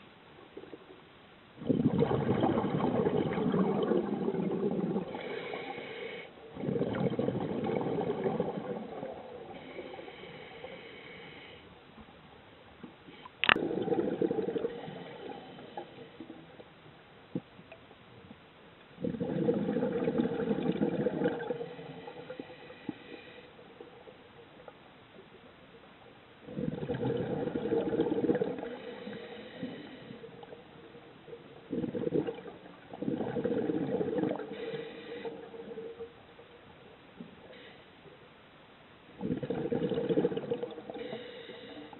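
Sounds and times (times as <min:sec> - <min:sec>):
exhaled bubbles gurgling underwater: 0:01.6 - 0:10.9, 0:12.8 - 0:16.7, 0:19.0 - 0:24.8, 0:26.4 - 0:37.7, 0:39.1 - 0:41.9.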